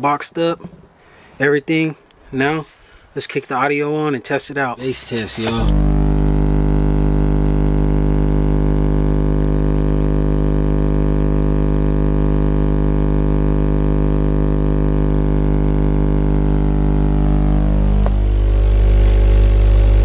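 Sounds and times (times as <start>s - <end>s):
subwoofer deep bass drone: 4.8s - 20.0s.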